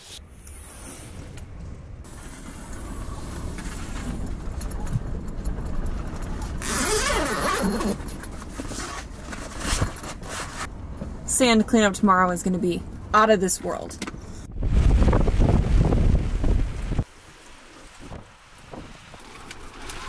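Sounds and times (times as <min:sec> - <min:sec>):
wind rumbling against tent: 0:00.0 - 0:11.2, 0:14.2 - 0:20.0
tent window flap rasping: 0:06.6 - 0:10.7.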